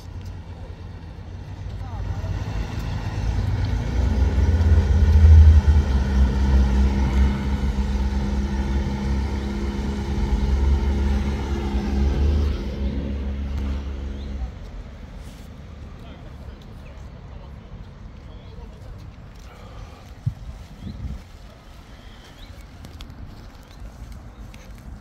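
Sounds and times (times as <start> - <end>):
outboard motor running: 0.8 - 14.9.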